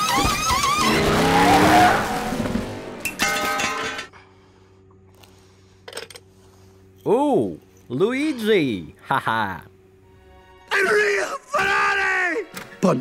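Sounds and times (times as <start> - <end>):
race car speeding away: 0.6 - 3.0.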